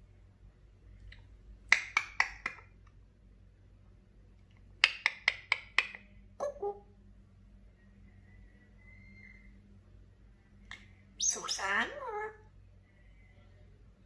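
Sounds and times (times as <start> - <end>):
parrot clicking: 1.7 - 2.8, 4.8 - 6.1
parrot call: 8.1 - 9.6, 11.2 - 12.4.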